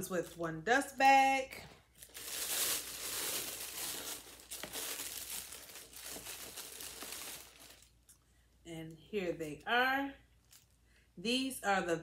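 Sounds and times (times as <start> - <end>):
tissue paper crinkling: 1.9 - 8.0.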